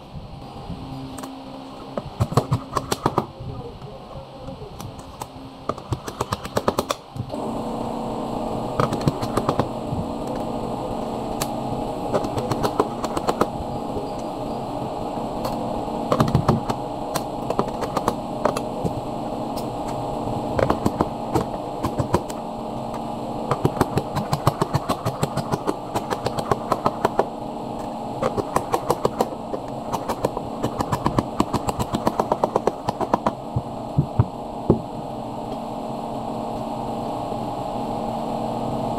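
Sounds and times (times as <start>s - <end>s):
steady hum: 0.0s - 38.9s.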